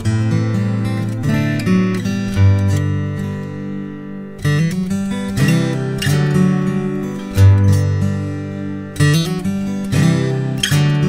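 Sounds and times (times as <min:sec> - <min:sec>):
strummed acoustic guitar: 0:00.0 - 0:11.0.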